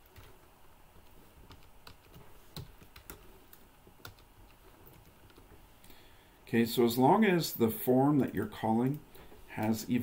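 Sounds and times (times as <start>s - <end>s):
faint keyboard typing: 0.0s - 6.0s, 8.0s - 10.0s.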